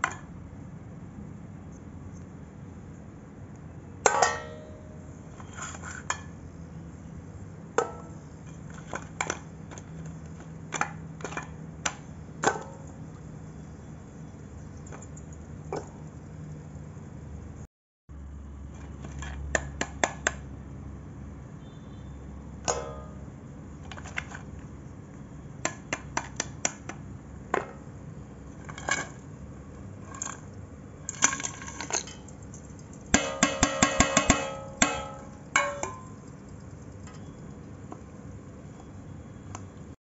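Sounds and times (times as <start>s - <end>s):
clay pieces clinking on steel bowl: 31.1s - 37.2s.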